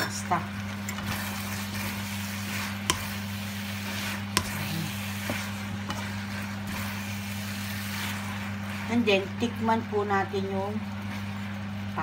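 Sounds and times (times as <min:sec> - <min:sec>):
food stirred in frying pan: 0:00.0 - 0:12.0
low sizzle: 0:00.0 - 0:12.0
steady low hum: 0:00.0 - 0:12.0.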